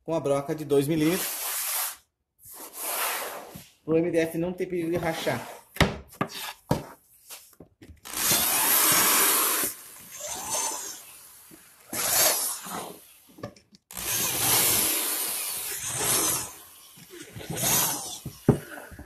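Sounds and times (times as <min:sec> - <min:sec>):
electric drill boring into wood: 0:08.0 - 0:13.3, 0:13.9 - 0:19.0.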